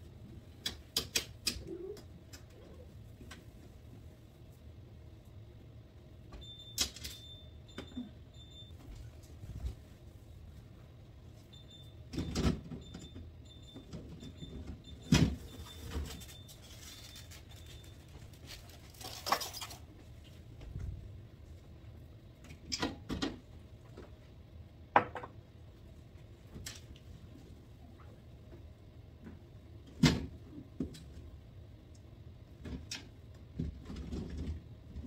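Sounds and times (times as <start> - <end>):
fridge shelves clattering: 14.0 - 19.9.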